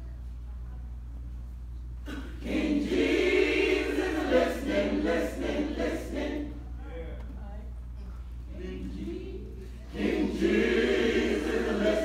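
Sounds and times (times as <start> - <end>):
steady low hum: 0.0 - 12.0
choir singing: 2.1 - 6.8, 8.5 - 12.0.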